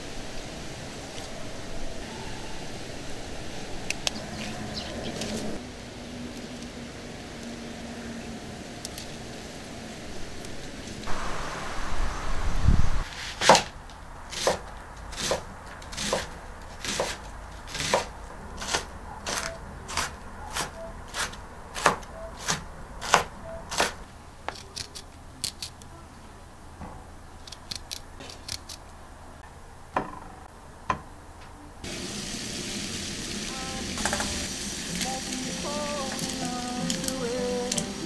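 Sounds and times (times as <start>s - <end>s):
steady hiss: 0.0s - 15.4s, 31.8s - 38.0s
knife cutting vegetables on board: 14.3s - 25.7s.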